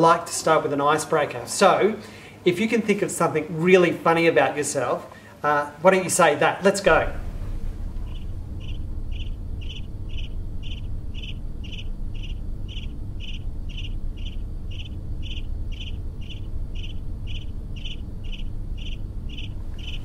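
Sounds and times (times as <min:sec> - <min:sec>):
crickets chirping: 0:06.8 - 0:20.0.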